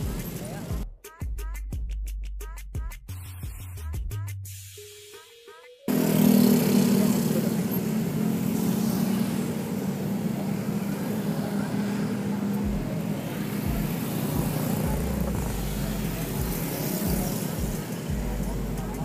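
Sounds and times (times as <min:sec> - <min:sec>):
road traffic noise: 0:00.0 - 0:00.8, 0:05.9 - 0:19.0
vehicle engine humming: 0:00.0 - 0:00.8, 0:05.9 - 0:19.0.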